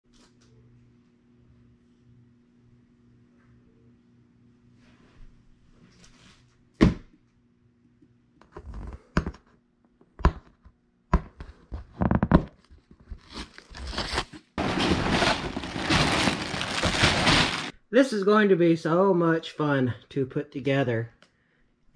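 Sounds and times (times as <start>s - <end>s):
plastic bags crinkling: 13.2s - 17.7s
cardboard box thump: 14.6s - 17.7s.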